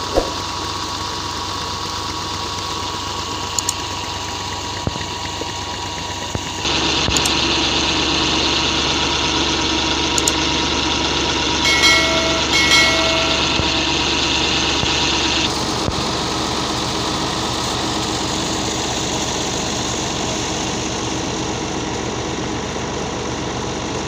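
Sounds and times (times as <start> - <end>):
tractor diesel engine running: 0.0 - 24.0
electronic chime: 11.7 - 14.7.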